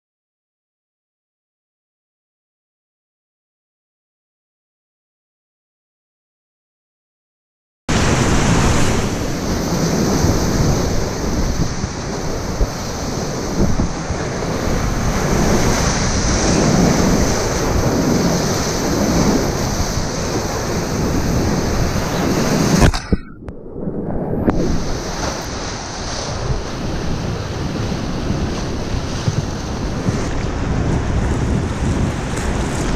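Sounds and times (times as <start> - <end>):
whitewater rapids roaring: 7.9 - 23.1
waves breaking around boat: 7.9 - 32.9
wind rumbling on microphone: 7.9 - 32.9.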